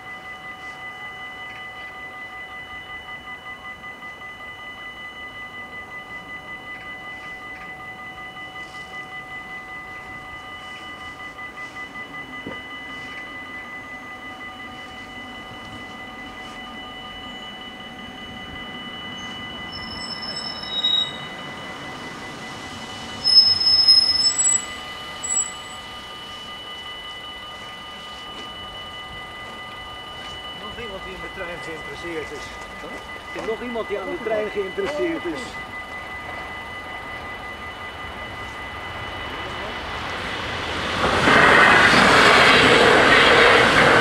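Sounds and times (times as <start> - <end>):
level crossing warning bells: 0.0 - 44.0
train passing: 0.0 - 44.0
train wheels squealing: 0.0 - 44.0.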